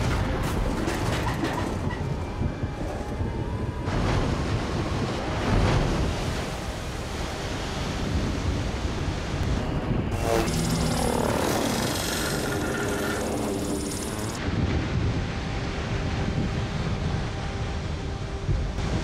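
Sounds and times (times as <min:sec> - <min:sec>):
wind: 0:00.0 - 0:19.0
deep rumble: 0:08.9 - 0:19.0
water rushing and pouring: 0:10.2 - 0:14.4.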